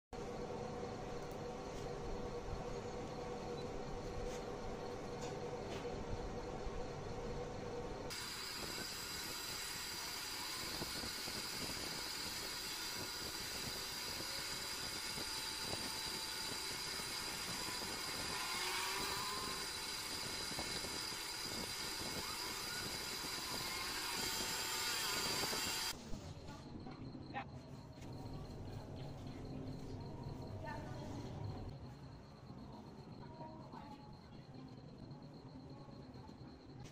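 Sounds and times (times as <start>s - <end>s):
small motor fan whirring: 0.2s - 26.0s
faint high whine: 0.2s - 36.9s.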